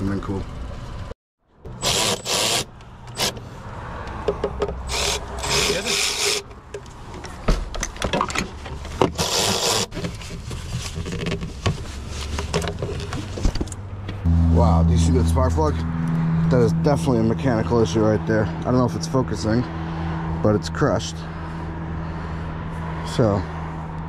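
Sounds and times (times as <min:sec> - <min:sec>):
rubbing and scraping: 0:08.4 - 0:13.8.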